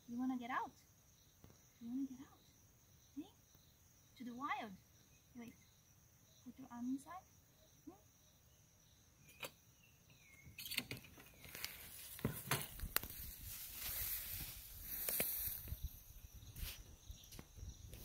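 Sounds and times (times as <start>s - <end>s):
rustling in tall grass: 11.2s - 18.0s.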